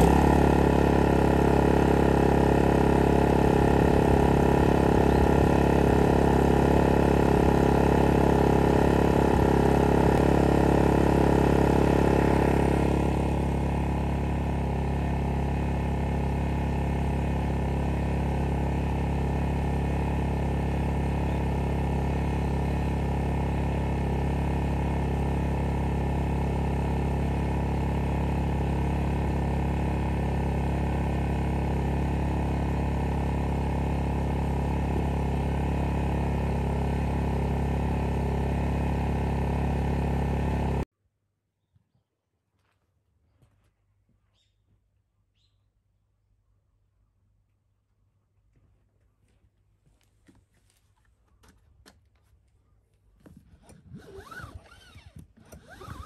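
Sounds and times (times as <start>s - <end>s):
generator engine drone: 0.0s - 40.9s.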